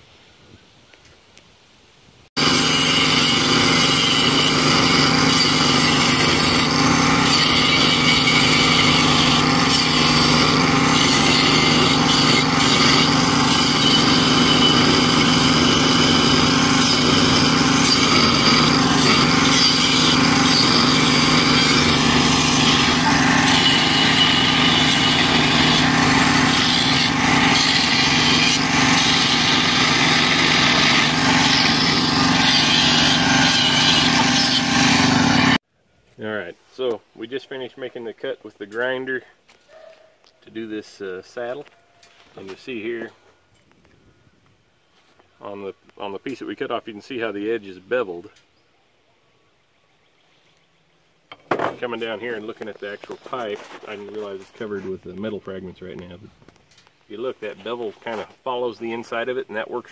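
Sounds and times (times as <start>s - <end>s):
angle grinder cutting steel pipe: 2.4s - 35.6s.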